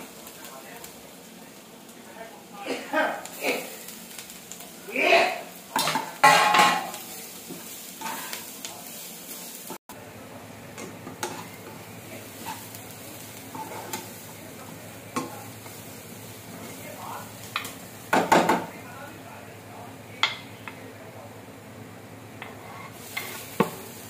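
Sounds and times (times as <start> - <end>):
vegetables sizzling in a frying pan: 0.0 - 24.0
metal spoon scraping a pan: 5.8 - 8.4, 11.2 - 11.7, 13.5 - 14.1, 22.4 - 23.8.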